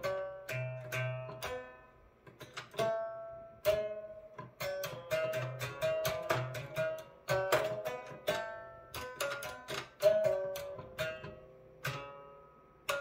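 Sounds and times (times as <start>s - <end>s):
tangent clicking on string: 0.0s - 13.0s.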